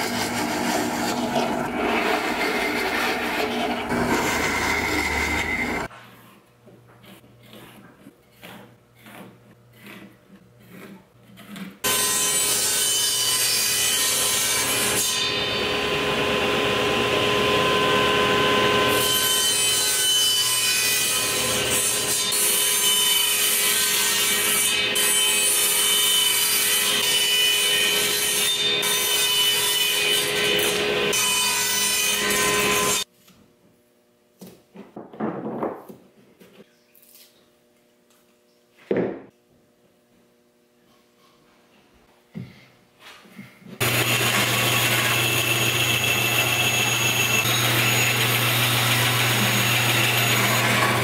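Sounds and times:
table saw cutting wood: 0:00.0 - 0:05.9, 0:11.5 - 0:33.1, 0:43.8 - 0:51.0.

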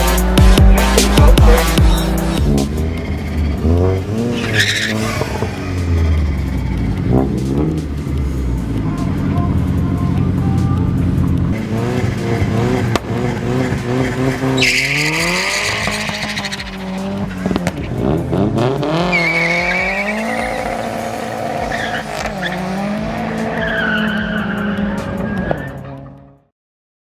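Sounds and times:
car engine revving: 0:00.0 - 0:26.4
tyre squeal: 0:04.3 - 0:05.6, 0:14.5 - 0:16.9, 0:19.0 - 0:20.9, 0:21.5 - 0:22.7, 0:23.5 - 0:25.8.

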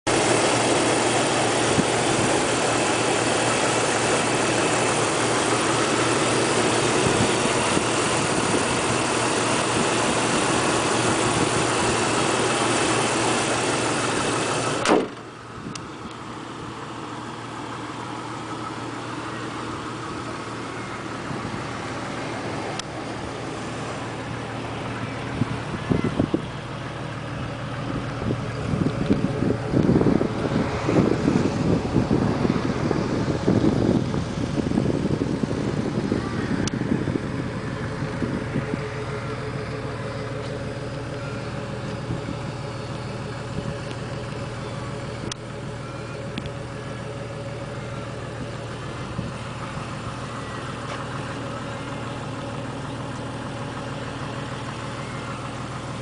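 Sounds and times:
car engine idling: 0:00.0 - 0:56.0
bang: 0:14.8 - 0:15.3.

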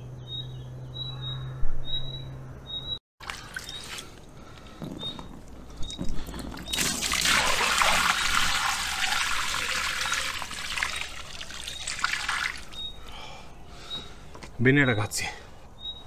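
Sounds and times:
water splashing from a bucket: 0:03.2 - 0:04.3, 0:06.6 - 0:12.9.

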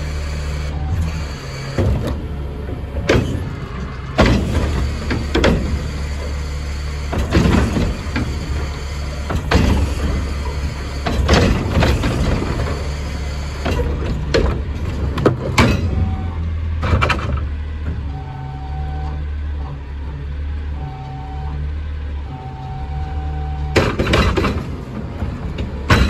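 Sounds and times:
garbage truck engine running: 0:00.0 - 0:26.0
loud metal clanks and bangs: 0:01.7 - 0:18.0, 0:23.8 - 0:26.0.

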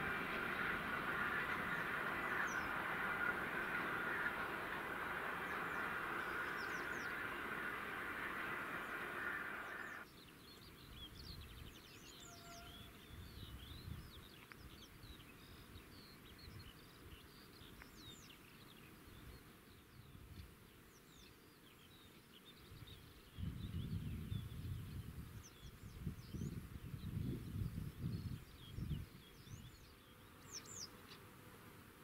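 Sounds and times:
low rumble: 0:00.0 - 0:10.0
faint birdsong: 0:00.0 - 0:31.3.

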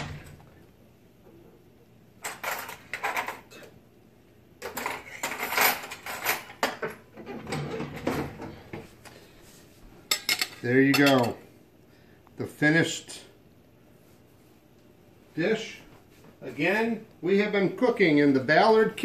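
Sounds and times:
cutlery clinking on china plates: 0:10.1 - 0:11.4.

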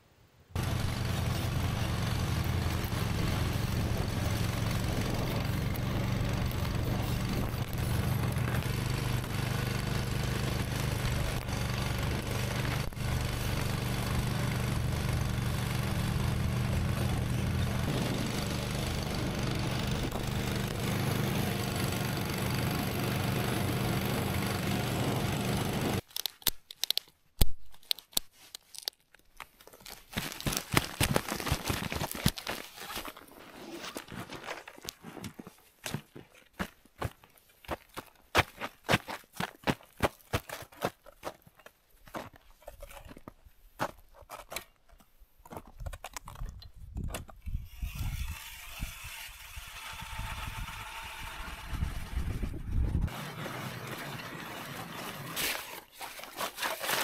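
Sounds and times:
snowmobile engine running: 0:00.6 - 0:26.0, 0:49.5 - 0:55.4
binding clicks and rustles in snow: 0:26.0 - 0:49.5, 0:53.1 - 0:57.0.

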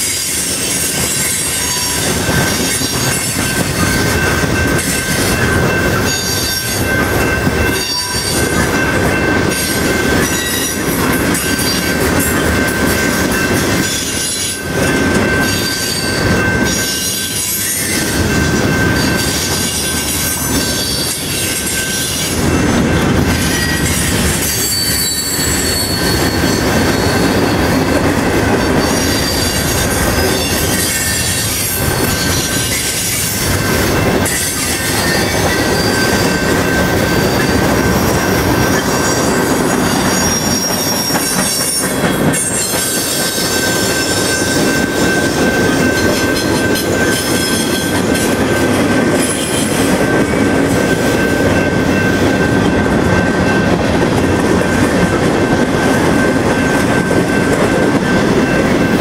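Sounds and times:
train truck clacks: 0:00.0 - 0:59.0
train wheels rumbling on rail: 0:00.0 - 0:59.0
wheel squeal: 0:23.4 - 0:28.0, 0:28.6 - 0:48.2.

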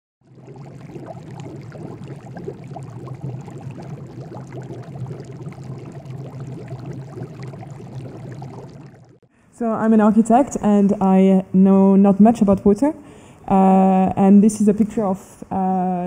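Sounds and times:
bubbling running water: 0:00.2 - 0:09.3
low steady hum: 0:00.2 - 0:16.0.

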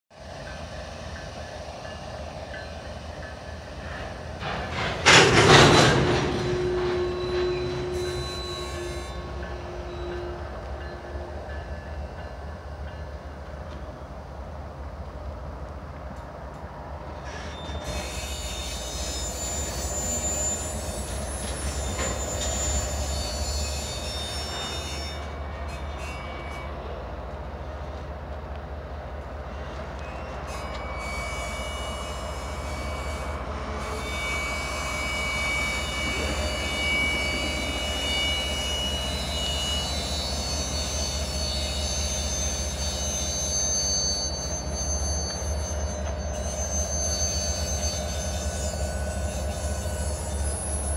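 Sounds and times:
steel wheels squealing on rails: 0:00.2 - 0:50.9
freight cars rumbling: 0:01.1 - 0:31.1.

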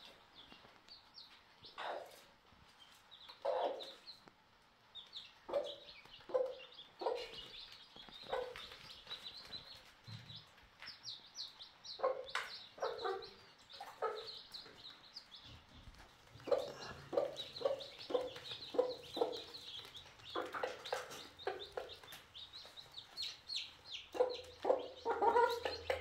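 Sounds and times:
chicks peeping: 0:00.0 - 0:26.0
hen clucking: 0:03.2 - 0:04.1, 0:05.5 - 0:10.5, 0:11.2 - 0:26.0.

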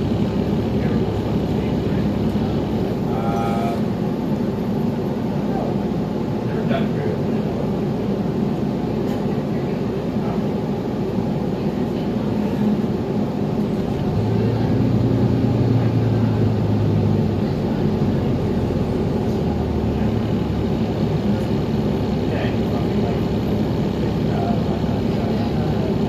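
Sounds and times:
bus drivetrain drone: 0:00.0 - 0:26.0.

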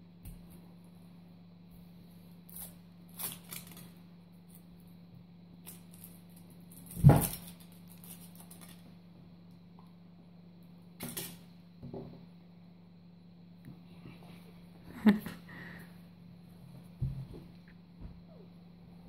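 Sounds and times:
foil wrapper crinkling: 0:02.5 - 0:04.0, 0:05.7 - 0:08.9.

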